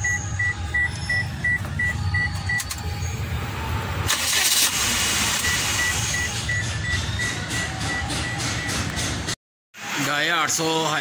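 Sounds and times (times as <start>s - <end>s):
electronic beeps: 0.0s - 3.2s, 5.4s - 8.8s
van engine rumbling: 0.0s - 9.4s.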